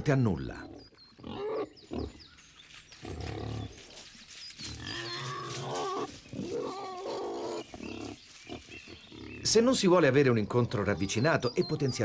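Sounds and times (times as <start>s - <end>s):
wild boars squealing and grunting: 0.6s - 2.2s, 4.6s - 9.6s.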